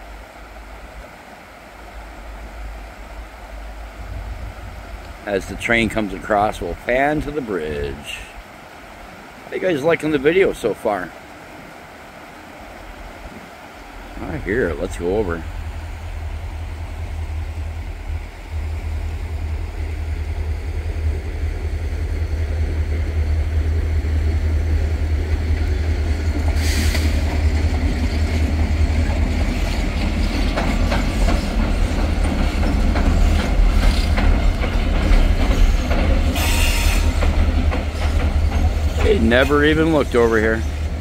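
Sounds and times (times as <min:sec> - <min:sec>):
diesel locomotive rumble: 0:01.8 - 0:08.4, 0:14.1 - 0:41.0.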